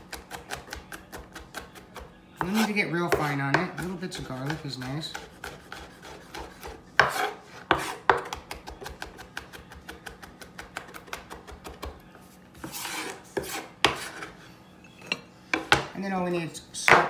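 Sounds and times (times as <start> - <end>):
knife chopping on wooden board: 0.0 - 12.0, 12.6 - 14.3
knife blade scraping board: 2.4 - 2.7, 4.5 - 8.3, 12.6 - 14.4.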